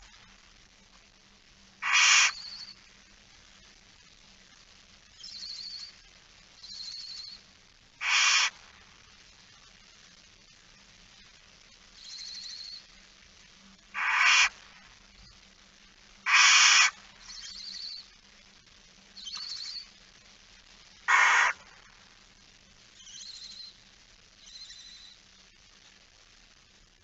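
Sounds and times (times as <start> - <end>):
barn owls hissing calls: 1.8 - 2.8, 8.0 - 8.6, 14.0 - 14.6, 16.2 - 18.0, 21.1 - 21.8.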